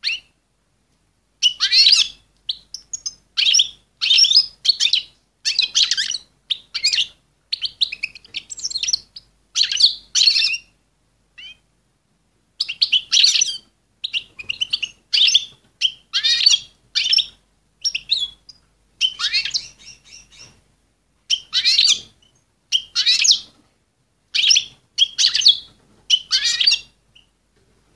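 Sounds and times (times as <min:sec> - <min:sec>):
goldfinch twittering chirps: 0:12.6 - 0:20.6, 0:21.3 - 0:23.5, 0:24.3 - 0:27.3.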